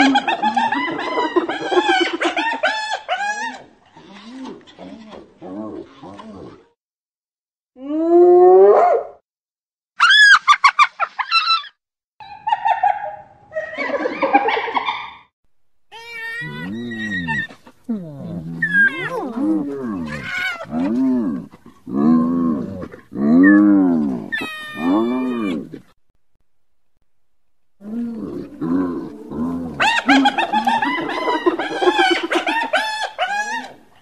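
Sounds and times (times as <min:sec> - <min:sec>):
hyenas whooping and giggling: 0:00.0 - 0:06.4, 0:10.0 - 0:15.2, 0:15.9 - 0:21.8, 0:22.8 - 0:25.9, 0:28.4 - 0:34.0
hyena growling calls: 0:16.0 - 0:26.0, 0:27.8 - 0:33.8.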